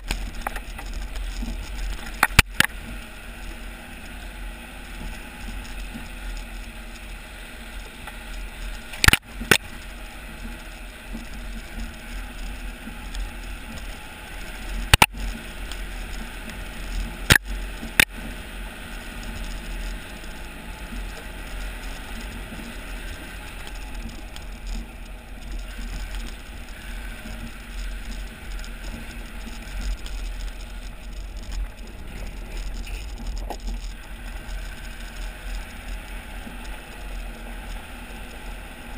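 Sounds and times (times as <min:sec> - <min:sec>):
sharp clicks: 0:00.0 - 0:02.8, 0:08.9 - 0:09.7, 0:14.9 - 0:15.8
tyres rolling on gravel: 0:00.0 - 0:38.9.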